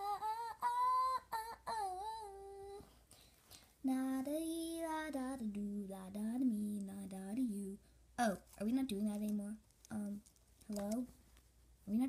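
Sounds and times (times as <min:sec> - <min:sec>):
lower voice singing held notes: 0:00.0 - 0:02.9
girl singing wordless tune: 0:00.0 - 0:11.2.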